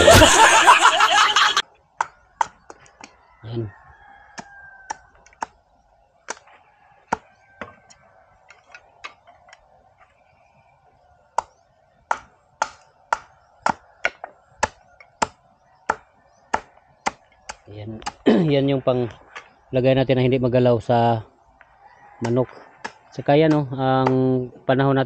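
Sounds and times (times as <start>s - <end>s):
knife chopping bamboo on a log: 7.1s - 7.7s, 12.1s - 18.2s, 22.2s - 24.2s.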